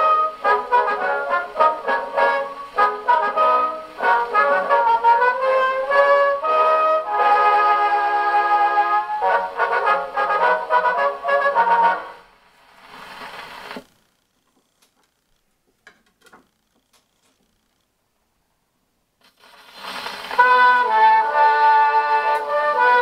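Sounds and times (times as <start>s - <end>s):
gramophone playing brass music: 0.0s - 12.4s, 19.4s - 23.0s.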